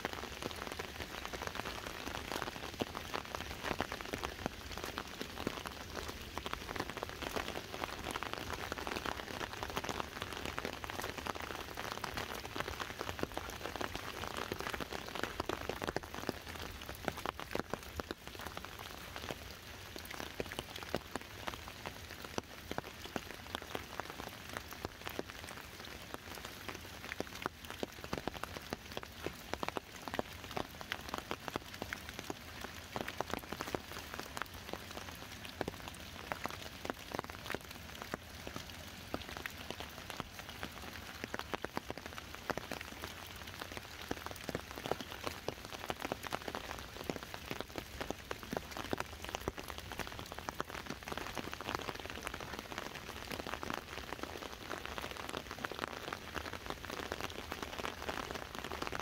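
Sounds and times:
rain tapping on an umbrella: 0.0s - 59.0s.

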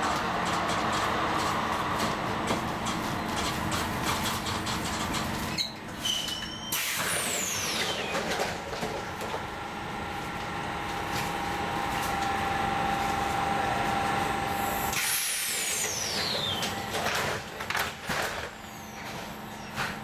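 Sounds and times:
tram motor whine: 0.0s - 20.0s.

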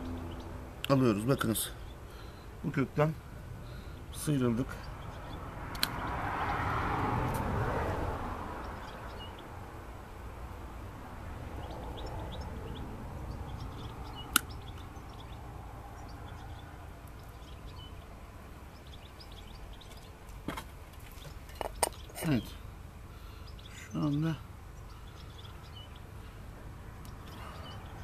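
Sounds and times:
small birds chirping: 0.0s - 7.5s, 8.4s - 28.0s
pruning shears snip: 5.7s - 6.0s.

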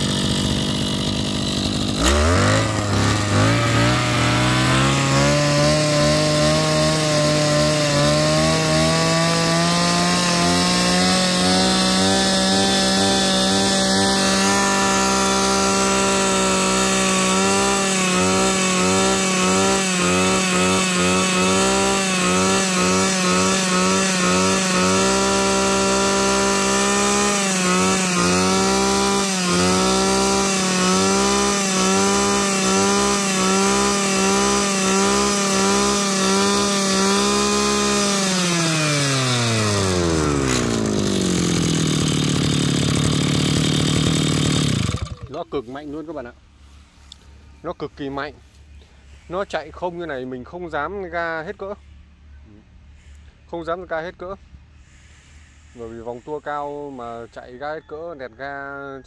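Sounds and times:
brush cutter engine revving: 0.0s - 46.4s.

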